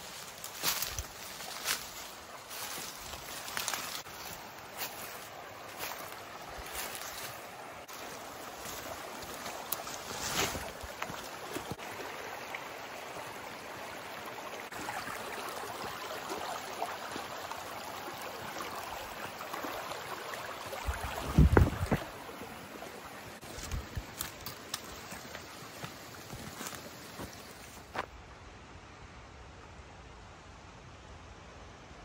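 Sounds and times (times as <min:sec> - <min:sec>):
footsteps through leaves: 0:00.0 - 0:11.8
twigs snapping: 0:23.6 - 0:25.1.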